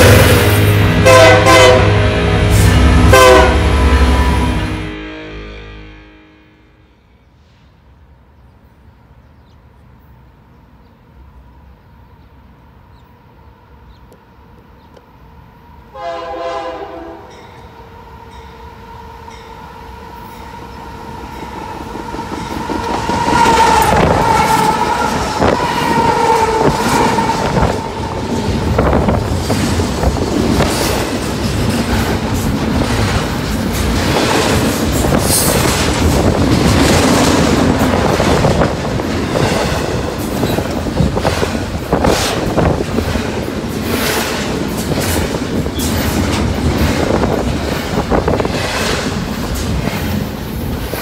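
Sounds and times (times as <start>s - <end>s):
locomotive air horn blasts: 0.0s - 7.5s, 15.9s - 17.4s, 23.0s - 29.1s
freight train rumbling past: 0.0s - 51.0s.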